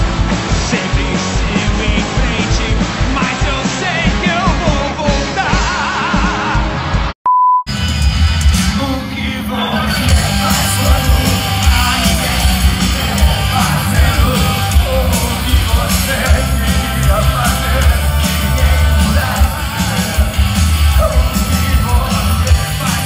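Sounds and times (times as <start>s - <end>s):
booming bass: 0.0s - 7.1s, 7.7s - 23.0s
live rock band with singer: 0.0s - 7.1s, 7.7s - 23.0s
crowd yelling and singing along: 0.0s - 23.0s
steady beep: 7.3s - 7.7s.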